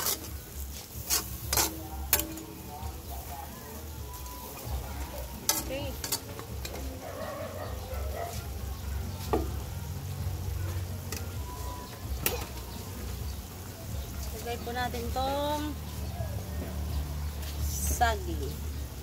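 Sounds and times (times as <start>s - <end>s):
metal utensil clinking on pan: 0.0s - 2.7s, 4.2s - 7.0s, 11.0s - 11.4s
food stirred in a metal pan: 0.0s - 19.0s.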